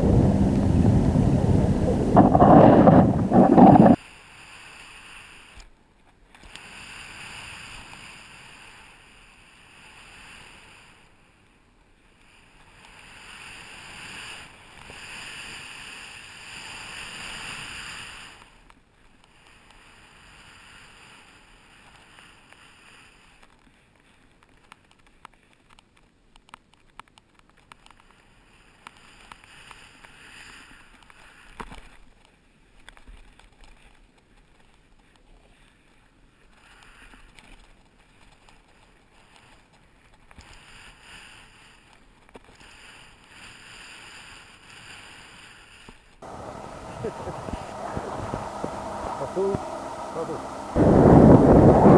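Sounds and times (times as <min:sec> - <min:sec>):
snowboard sliding through snow: 0:00.0 - 0:05.4, 0:12.3 - 0:18.4, 0:42.7 - 0:51.9
small clicks and taps: 0:23.4 - 0:28.2, 0:30.9 - 0:35.7.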